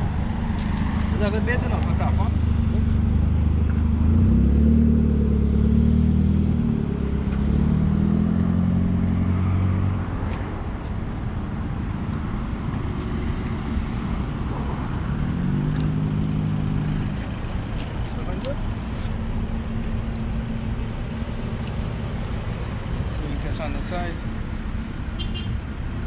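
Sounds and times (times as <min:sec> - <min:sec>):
passing traffic hum: 0:00.0 - 0:26.0.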